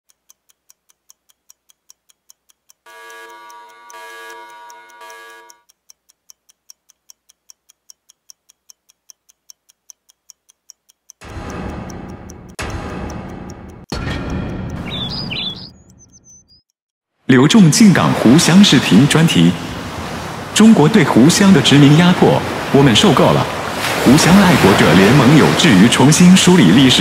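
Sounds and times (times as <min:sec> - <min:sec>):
clock ticking: 0:00.1 - 0:16.7
sustained pitched tone: 0:02.9 - 0:05.6.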